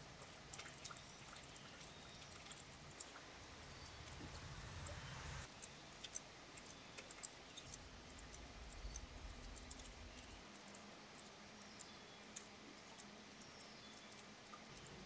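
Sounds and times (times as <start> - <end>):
faint ticks: 0.1 - 15.0
distant thunder rumble: 3.3 - 5.5.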